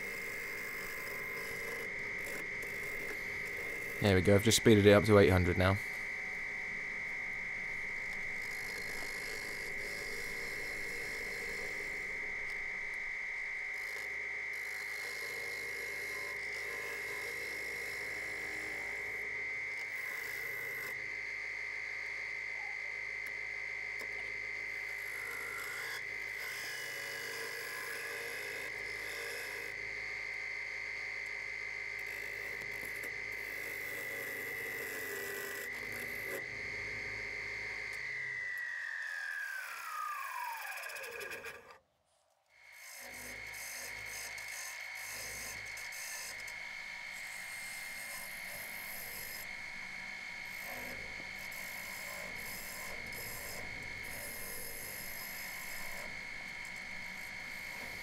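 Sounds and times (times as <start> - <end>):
wood lathe whining: 0.0 - 41.8, 42.6 - 58.0
gouge cutting wood hiss: 42.7 - 58.0.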